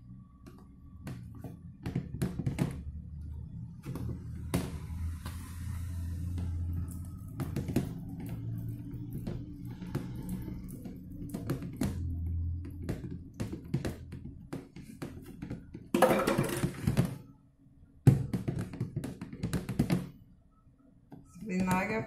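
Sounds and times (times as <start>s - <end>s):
low background music: 2.7s - 18.3s.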